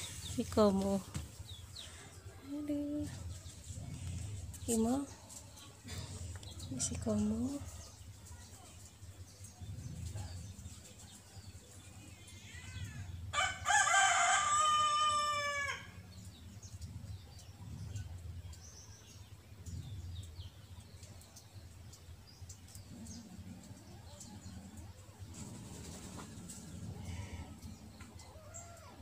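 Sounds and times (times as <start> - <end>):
rooster crowing: 13.3 - 16.0.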